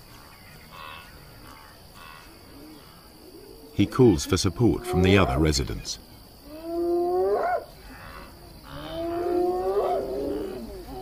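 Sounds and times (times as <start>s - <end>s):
hyena whooping: 8.7s - 11.0s.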